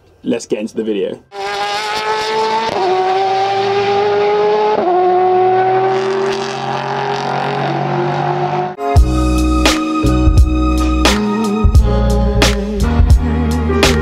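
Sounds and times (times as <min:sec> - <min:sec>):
car engine pulling through gears: 0:01.3 - 0:08.8.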